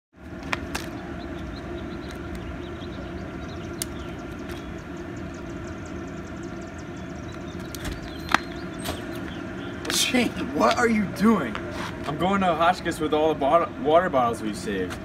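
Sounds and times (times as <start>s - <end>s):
low outdoor rumble: 0.1s - 15.0s
plastic bottles clicking on asphalt: 0.4s - 1.0s.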